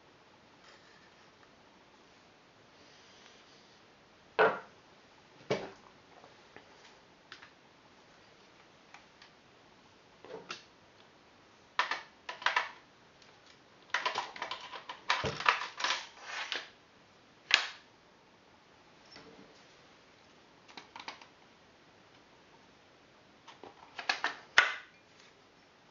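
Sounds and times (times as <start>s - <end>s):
rifle parts clicking and rattling: 13.9s - 16.2s.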